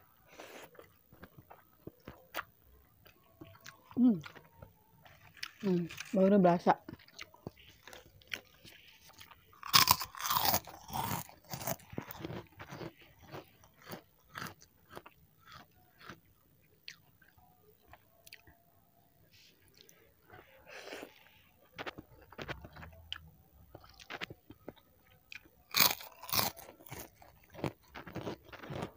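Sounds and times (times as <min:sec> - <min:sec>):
chewing crunchy cracker: 0:00.1 - 0:18.6, 0:19.6 - 0:28.9.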